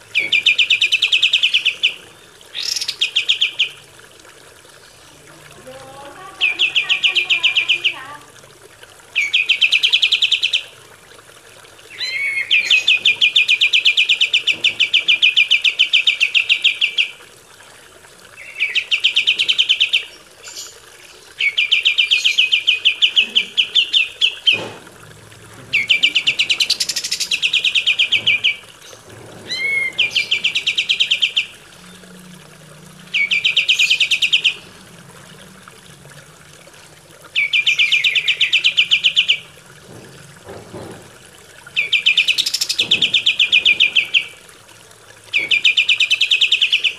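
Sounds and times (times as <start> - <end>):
bulbul singing rattling trill: 25.7 - 32.1, 33.1 - 34.8, 41.7 - 44.4.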